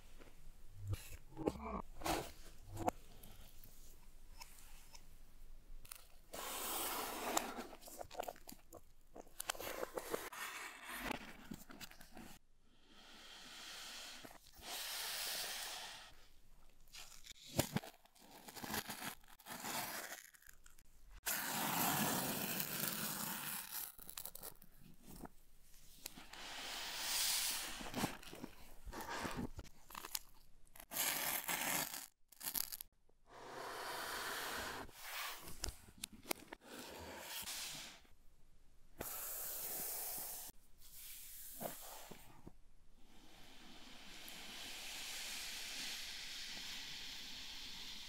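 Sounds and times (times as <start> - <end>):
box sliding across surface: 6.4 - 7.8.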